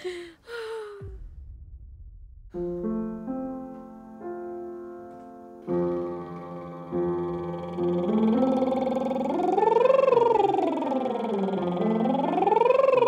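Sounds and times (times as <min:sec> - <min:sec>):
woman's voice: 0:00.0 - 0:01.2
low rumble: 0:00.0 - 0:04.2
piano playing slow chords: 0:02.6 - 0:13.0.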